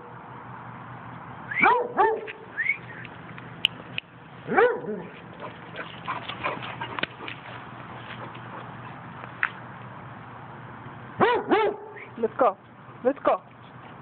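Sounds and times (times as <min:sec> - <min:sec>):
dog baying: 0:04.5 - 0:09.0.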